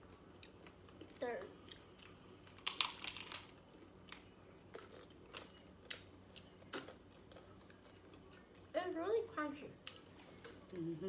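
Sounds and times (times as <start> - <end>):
taco shell crunching: 1.7 - 8.6.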